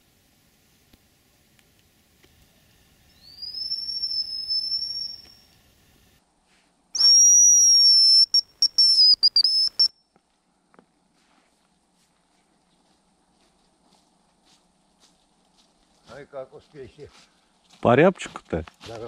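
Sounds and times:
bird call lure whistle: 3.1 - 5.6, 7.0 - 10.0
high thin bird whistles: 3.1 - 5.6, 7.0 - 9.9.

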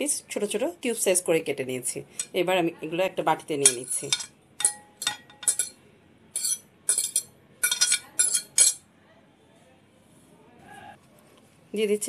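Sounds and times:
metal fork clinking on ceramic plates: 2.1 - 2.4, 3.6 - 5.8, 6.4 - 8.8.

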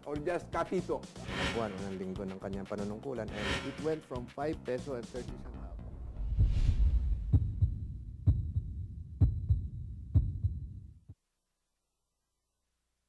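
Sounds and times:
steady low drone: 1.2 - 2.1, 3.3 - 4.0
heartbeat thumps: 6.2 - 11.2.

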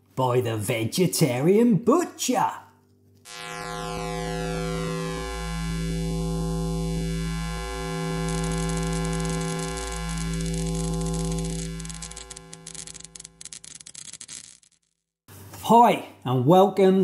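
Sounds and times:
buzzy synthesizer chord: 3.3 - 12.8
fine high crackle: 6.9 - 13.6.

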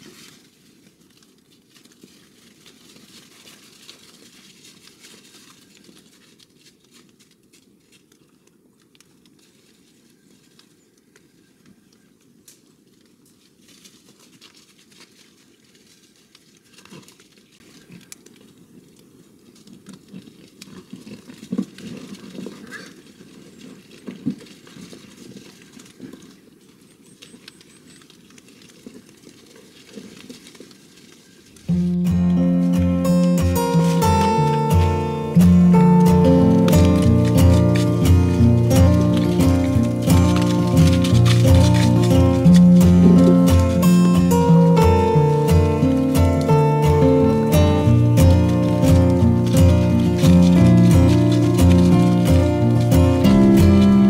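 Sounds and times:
rustling in leaves and snow: 0.0 - 54.0
sharp noises: 31.7 - 54.0.

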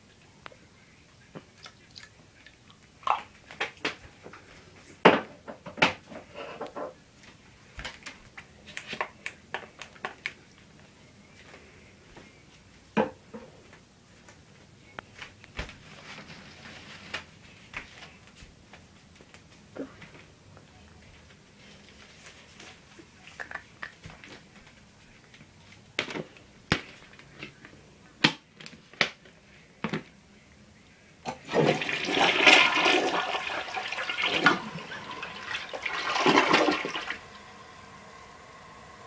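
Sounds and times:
toilet flushing water gush: 31.3 - 39.0.

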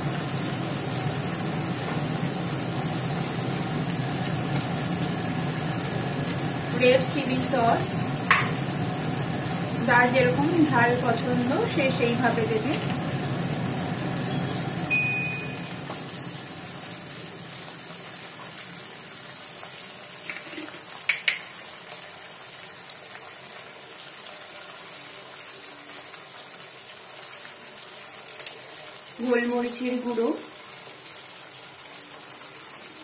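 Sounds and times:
vegetables sizzling in a pan: 0.0 - 33.0.

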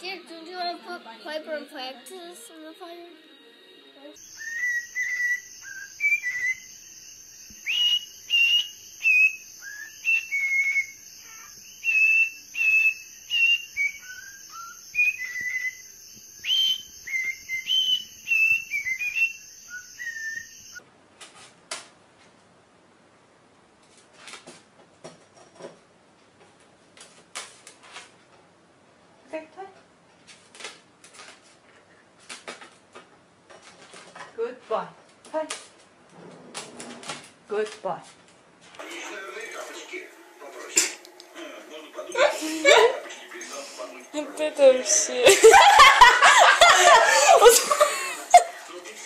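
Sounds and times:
cockatiel whistling: 4.2 - 20.8.

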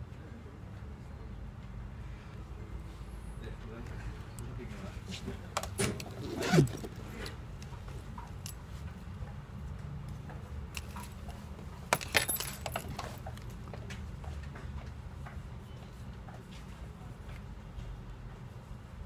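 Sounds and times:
metallic jangling in pocket: 5.6 - 7.4, 10.7 - 13.7.

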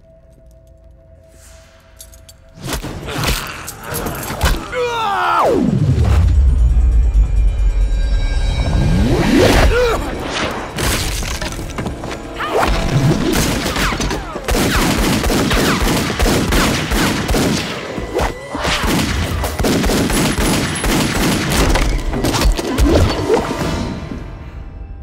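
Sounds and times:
rapid gunshots: 13.3 - 22.0.

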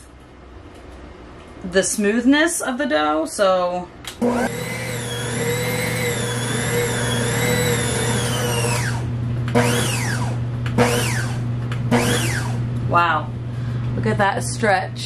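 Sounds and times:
stand mixer motor whining: 4.2 - 12.7.

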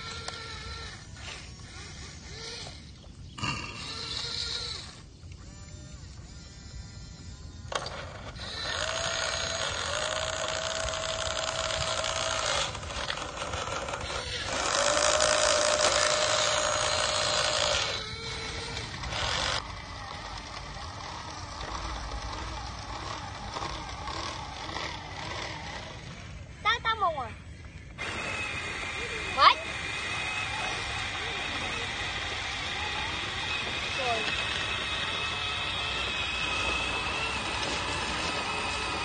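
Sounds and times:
electric motors whirring: 0.0 - 39.0
trucks dragged over gravel: 31.0 - 39.0.

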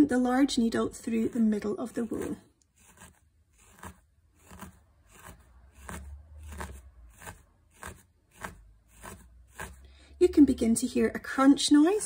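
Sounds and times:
felting needle crunching into wool: 1.2 - 9.9.

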